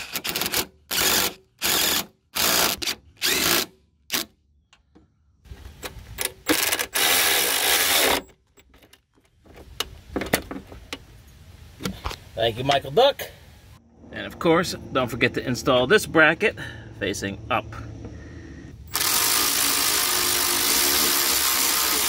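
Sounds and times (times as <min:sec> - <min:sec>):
electric ratchet spinning bolt: 0:00.0 - 0:04.3, 0:06.2 - 0:08.2, 0:18.9 - 0:22.0.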